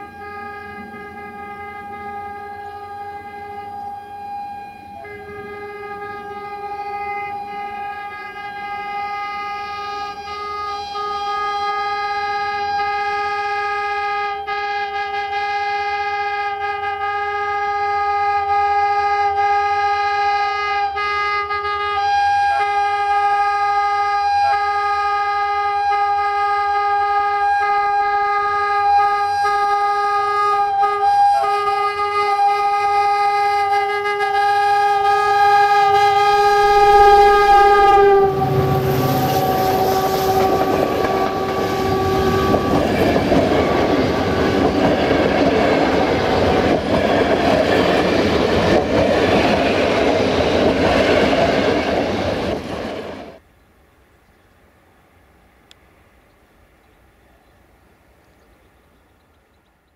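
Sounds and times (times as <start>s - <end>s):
locomotive air horn blast: 0.0s - 44.7s
train wheels clickety-clack on rails: 39.1s - 53.4s.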